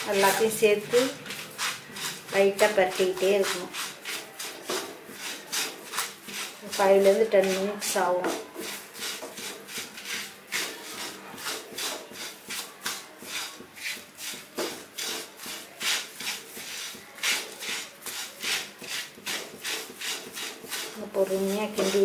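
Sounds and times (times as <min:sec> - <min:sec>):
spatula scraping in a wok: 0:00.0 - 0:22.0.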